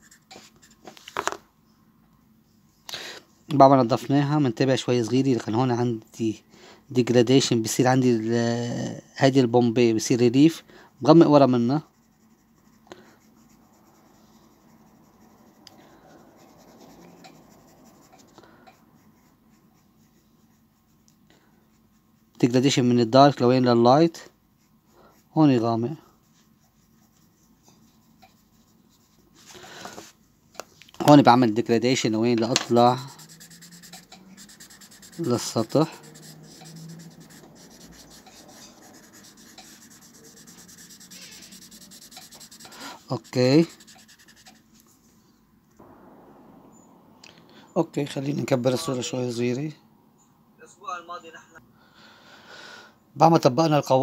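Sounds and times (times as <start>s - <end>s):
pencil scratching on paper: 0.0s - 1.0s, 10.9s - 22.8s, 24.6s - 30.1s, 31.3s - 44.9s.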